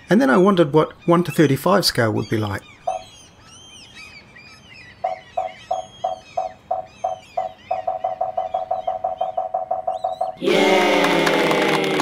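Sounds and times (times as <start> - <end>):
faint bird chirping: 0.0 - 10.4
short electronic beeps: 2.9 - 3.1, 5.0 - 10.4.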